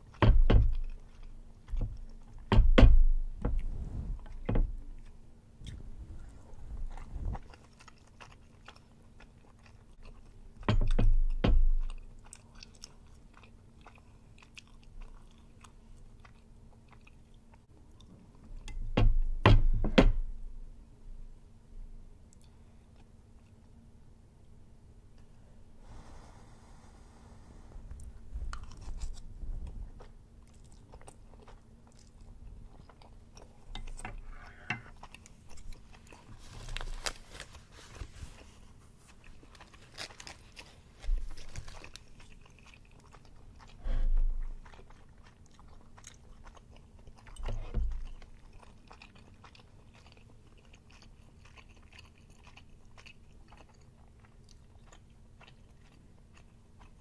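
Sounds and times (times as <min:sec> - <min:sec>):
close chewing: 0:00.0 - 0:02.5, 0:04.2 - 0:18.7, 0:28.0 - 0:29.2, 0:29.9 - 0:57.0.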